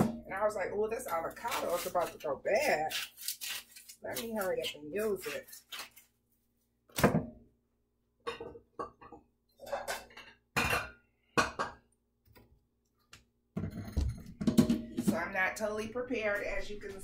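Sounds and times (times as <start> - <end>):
kitchen knocks and clinks: 8.2 - 11.9, 13.6 - 15.4.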